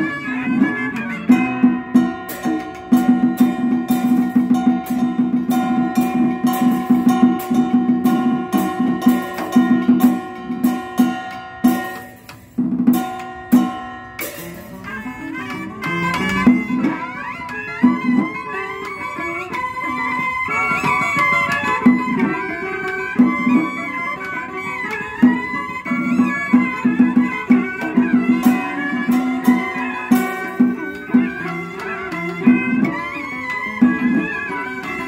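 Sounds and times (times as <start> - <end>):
two-string fiddle: 0.0 - 12.4, 13.1 - 35.0
percussion strokes: 0.0 - 35.0
plucked zither and lute: 0.0 - 35.0
reed horn melody: 14.6 - 18.0.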